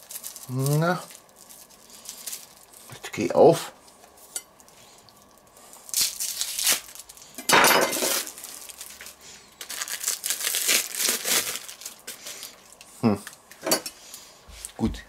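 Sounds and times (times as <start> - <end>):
plastic wrapping crinkling and tearing: 0.0 - 3.2, 4.6 - 13.4.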